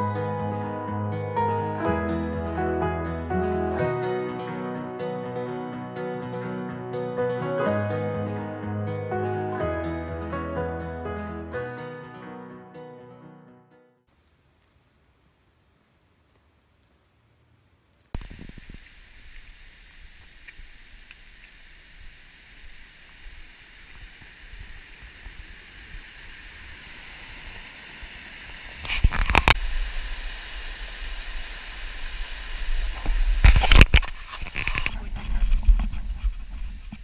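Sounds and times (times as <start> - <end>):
stream and waterfall rushing: 18.2 - 33.7
rumbling noise on microphone: 18.2 - 37.0.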